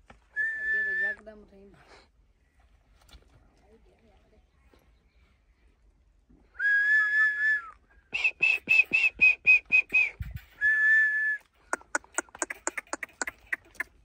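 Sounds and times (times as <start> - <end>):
person whistling: 6.6 - 11.4.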